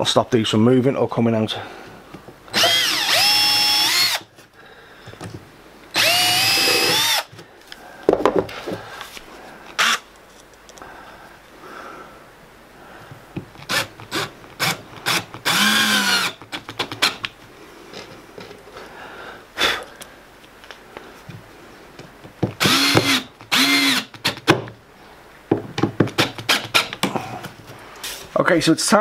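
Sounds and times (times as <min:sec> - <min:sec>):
power drill spinning: 0:02.5 - 0:04.3, 0:05.9 - 0:07.3, 0:09.8 - 0:10.1, 0:13.6 - 0:17.2, 0:22.6 - 0:24.4.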